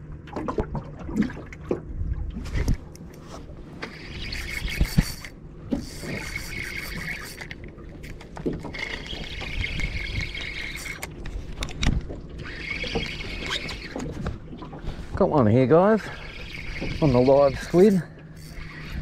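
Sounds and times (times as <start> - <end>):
fishing reel whirring: 3.7 - 11.8, 12.4 - 14.2, 16.0 - 19.0.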